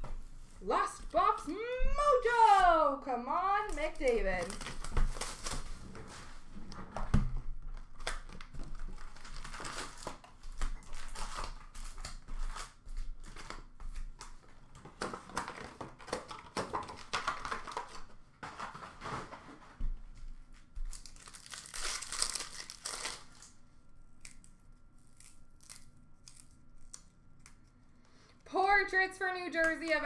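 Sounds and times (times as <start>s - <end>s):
card pack wrappers crinkling: 3.6s - 5.8s, 7.8s - 14.1s, 20.8s - 23.6s.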